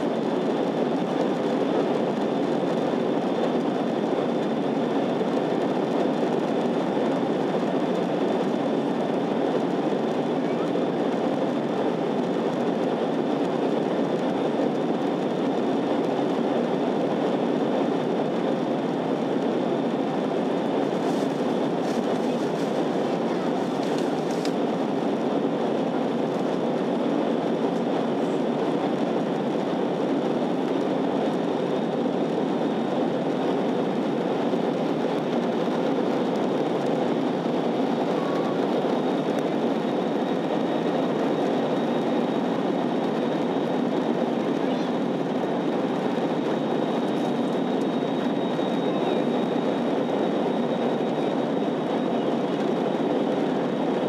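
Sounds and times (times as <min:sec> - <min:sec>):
airplane cabin engine rush: 0:00.0 - 0:54.0.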